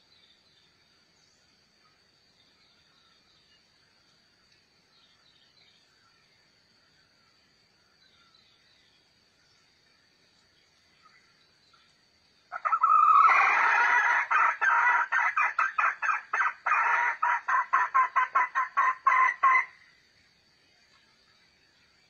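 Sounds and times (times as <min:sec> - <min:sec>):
chicken clucking: 0:13.9 - 0:19.7.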